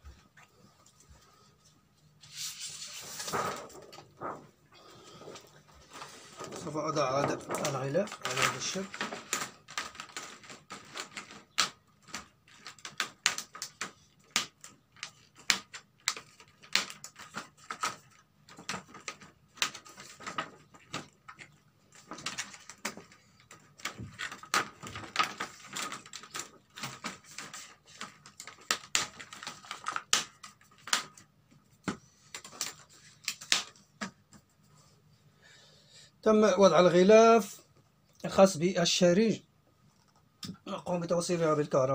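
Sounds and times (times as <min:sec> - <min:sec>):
plastic sheet clicks and crackles: 0:03.1 - 0:04.5, 0:05.1 - 0:34.4.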